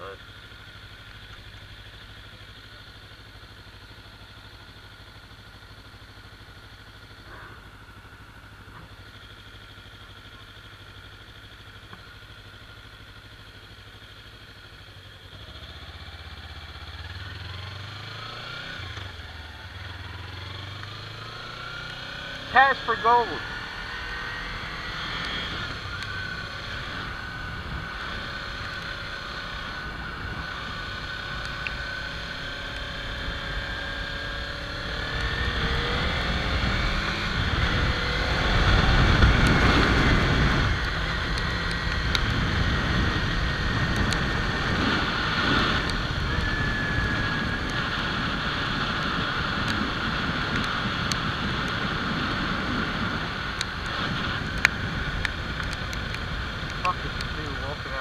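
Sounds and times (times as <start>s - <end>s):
motorcycle engine running: 0.0s - 58.0s
wind rushing over microphone: 34.5s - 58.0s.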